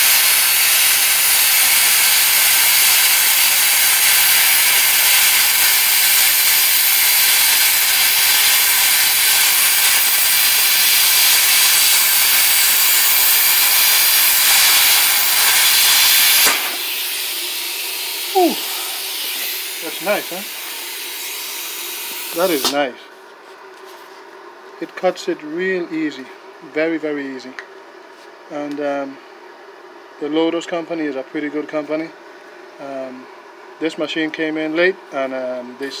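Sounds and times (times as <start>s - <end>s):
plasma cutter hissing: 0.0s - 22.9s.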